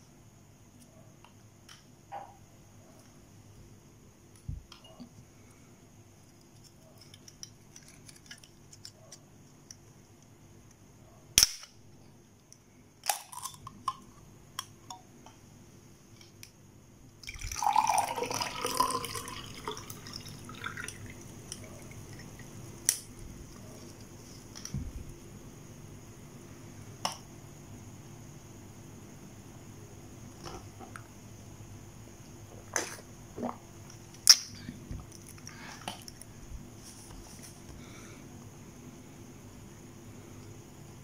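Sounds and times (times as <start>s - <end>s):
drink pouring into a glass: 17.2s - 22.4s
drink can cracked open: 34.2s - 34.5s.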